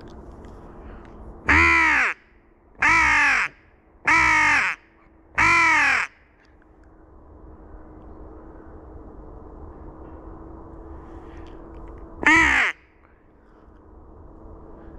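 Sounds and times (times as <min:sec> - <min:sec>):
crow caller caws: 0:01.5 - 0:02.2, 0:02.8 - 0:06.2, 0:12.2 - 0:12.8.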